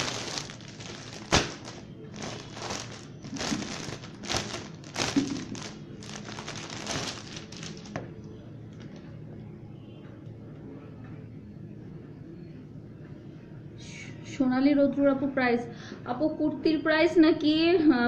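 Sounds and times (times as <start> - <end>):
fabric rustling and crinkling: 0.0 - 8.1.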